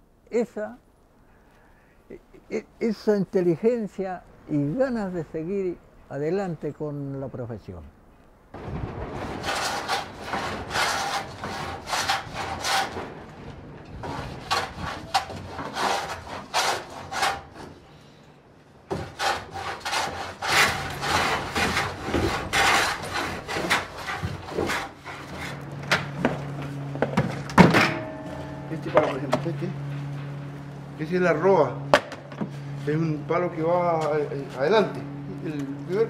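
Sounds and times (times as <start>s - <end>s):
steady low hum: 0.0s - 36.0s
hand tool rasping across wood: 9.3s - 13.0s, 14.0s - 17.8s, 18.9s - 26.4s.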